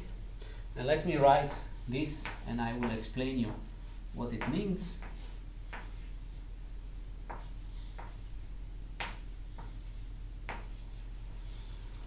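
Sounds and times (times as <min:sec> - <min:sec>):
chalk tapping and scraping on blackboard: 0:01.1 - 0:06.5, 0:07.2 - 0:11.2.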